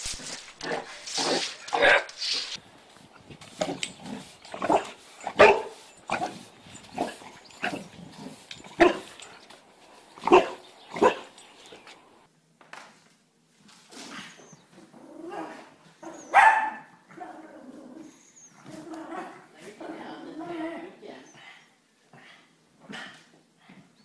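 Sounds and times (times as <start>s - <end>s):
dog barking: 1.7s - 2.1s, 3.6s - 9.3s, 10.2s - 11.4s, 16.2s - 16.9s.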